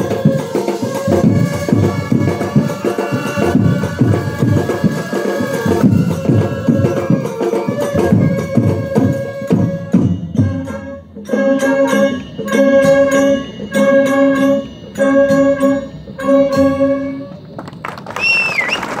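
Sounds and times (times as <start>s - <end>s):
drum hits: 0.0s - 10.6s
brass band chords: 0.0s - 17.5s
high sliding whistle: 0.0s - 19.0s.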